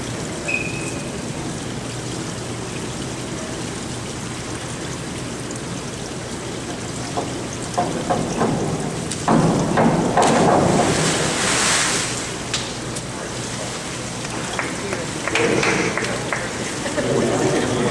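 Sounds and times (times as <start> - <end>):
indoor pool hall hiss: 0.0 - 17.9
steps on springboard knocking: 7.1 - 11.1.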